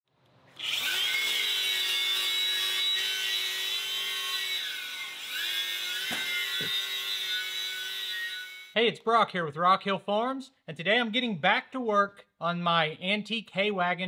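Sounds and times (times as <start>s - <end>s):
angle grinder grinding metal: 0.6s - 8.8s.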